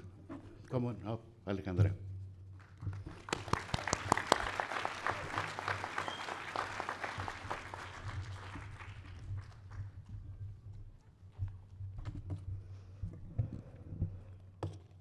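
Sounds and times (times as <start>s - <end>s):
audience applauding: 2.6s - 10.1s.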